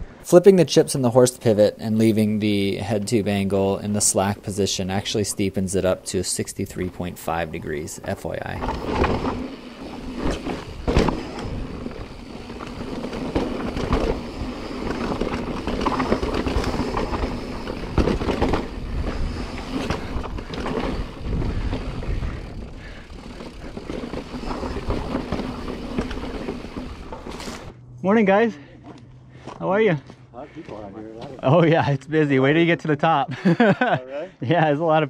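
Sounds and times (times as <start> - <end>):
bike tyres crunching over dirt: 1.5 - 27.8
bike knocking and rattling: 6.7 - 27.8
wind rumble on microphone: 10.2 - 23.0.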